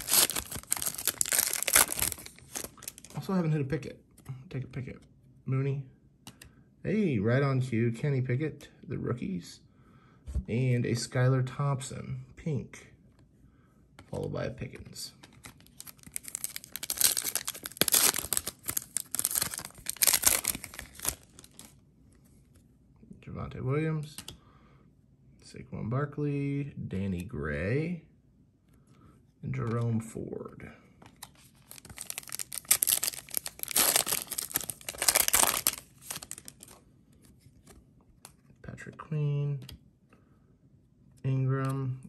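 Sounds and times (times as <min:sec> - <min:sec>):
foil wrapper crinkling: 0:00.0 - 0:03.2, 0:15.6 - 0:21.7, 0:31.6 - 0:36.8.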